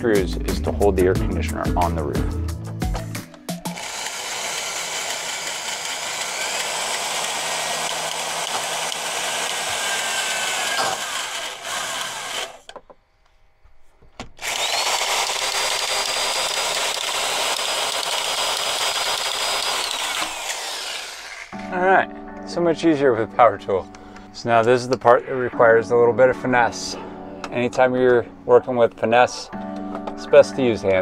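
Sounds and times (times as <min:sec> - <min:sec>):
cordless drill driving screws: 0:03.7 - 0:12.7, 0:14.4 - 0:21.6.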